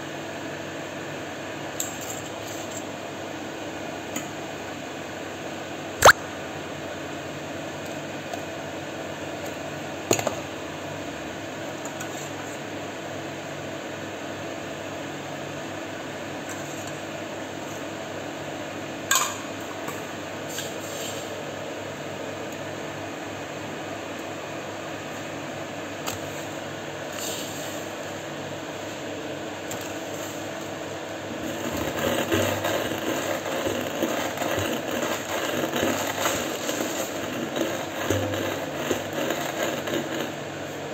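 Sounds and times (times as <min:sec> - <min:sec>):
electric fan whirring: 0:21.4 - 0:40.9.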